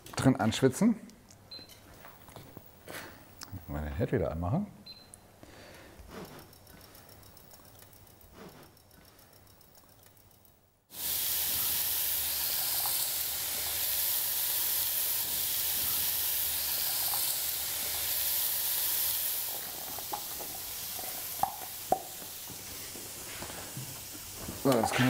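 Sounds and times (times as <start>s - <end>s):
onions sizzling in a pot: 10.9s - 25.0s.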